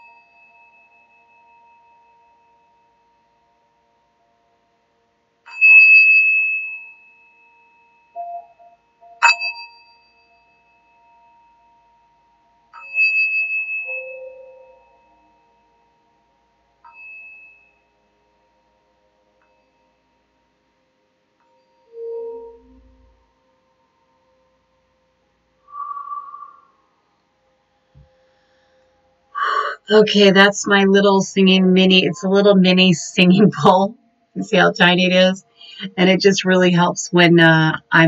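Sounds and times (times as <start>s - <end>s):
singing bowl struck ringing: 0.0s - 3.5s, 5.4s - 18.6s, 21.5s - 24.6s, 25.7s - 27.0s.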